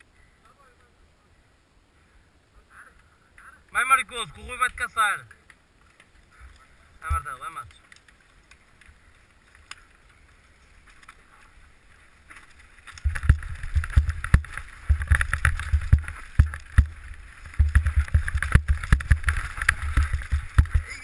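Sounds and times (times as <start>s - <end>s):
bike knocks and rattles: 12.3s - 21.0s
wind buffeting microphone: 13.0s - 21.0s.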